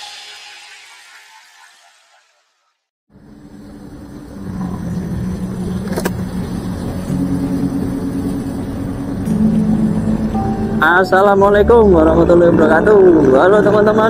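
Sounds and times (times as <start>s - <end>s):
scooter engine running: 3.2s - 10.8s
traffic of motorbikes and cars: 3.2s - 14.0s.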